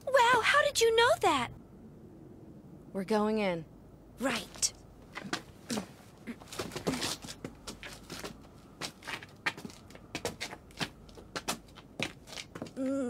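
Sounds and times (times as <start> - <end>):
footsteps walking: 4.5 - 12.8.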